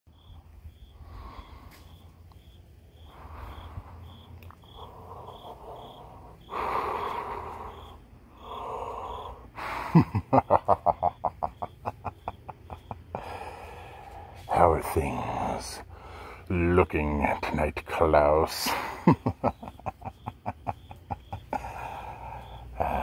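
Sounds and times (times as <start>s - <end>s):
person wheezing heavily: 3.2s - 10.2s, 12.9s - 14.4s, 21.5s - 23.0s
rapid rattling laugh: 9.6s - 13.5s, 18.6s - 23.0s.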